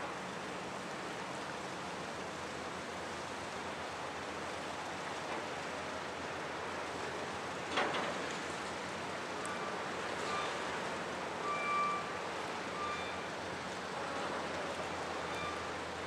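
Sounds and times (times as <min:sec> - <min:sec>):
water and wind rushing: 0:00.0 - 0:16.0
brief high tones: 0:11.4 - 0:12.1.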